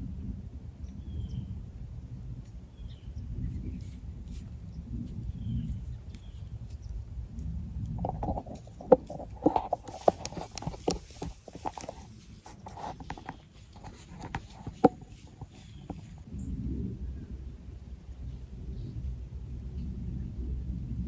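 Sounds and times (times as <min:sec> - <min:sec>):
wind rumble on microphone: 0:00.0 - 0:21.0
camera handling rustling and clicks: 0:08.0 - 0:16.3.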